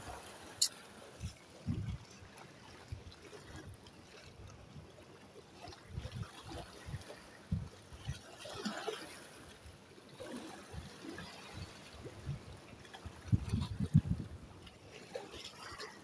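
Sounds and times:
water sloshing against concrete: 14.6s - 16.0s.

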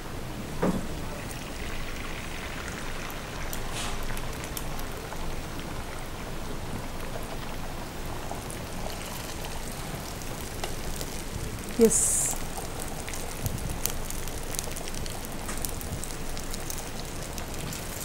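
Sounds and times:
eggs sizzling in hot oil: 1.0s - 18.0s
small crackles: 8.4s - 18.0s.

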